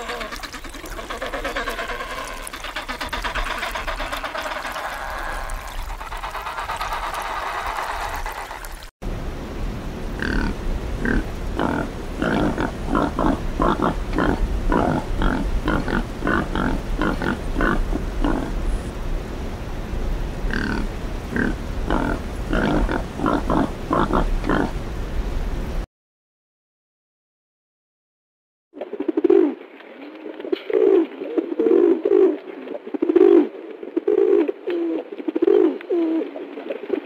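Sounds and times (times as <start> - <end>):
steady noisy sound: 9.0 - 25.8
pigs grunting: 10.2 - 18.6, 21.4 - 24.7.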